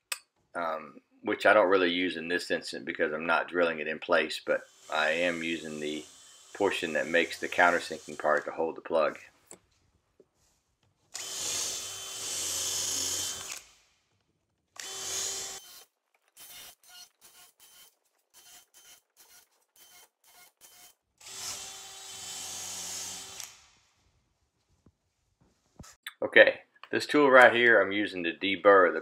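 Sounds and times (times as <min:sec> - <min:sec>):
drill motor whine cutting wood: 0:11.2 - 0:13.7, 0:14.8 - 0:15.8.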